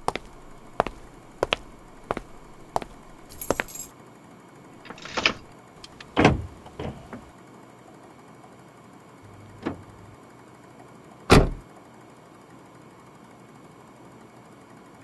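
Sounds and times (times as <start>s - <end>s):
keys jangling: 0.9s - 3.9s, 4.9s - 5.5s.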